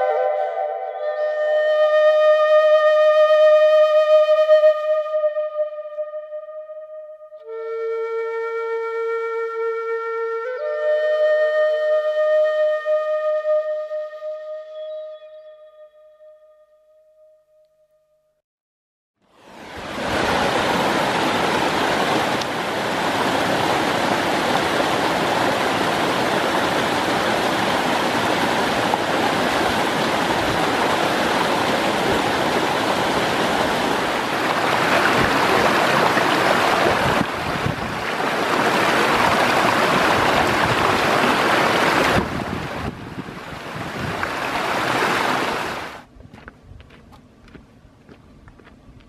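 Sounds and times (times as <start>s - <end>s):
stream cascading over rocks: 19.4s - 46.1s.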